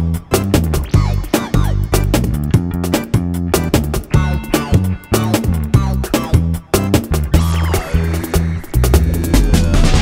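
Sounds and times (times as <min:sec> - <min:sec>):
upbeat funk music: 0:00.0 - 0:10.0.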